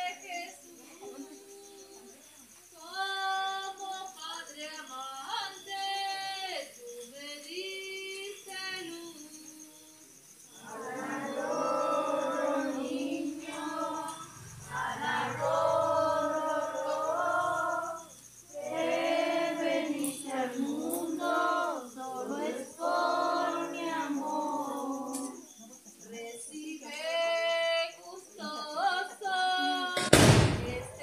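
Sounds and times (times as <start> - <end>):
voices singing together: 0.0 - 31.0.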